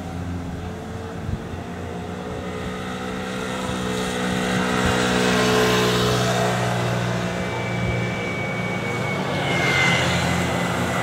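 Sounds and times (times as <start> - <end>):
cars passing: 0.0 - 11.0
motorcycle engine: 0.0 - 11.0.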